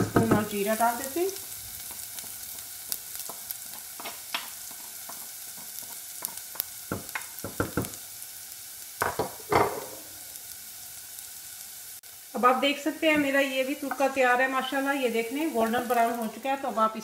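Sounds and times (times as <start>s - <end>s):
ginger sizzling in oil: 0.0s - 17.0s
spoon knocking on pot: 6.2s - 8.0s, 9.0s - 9.9s.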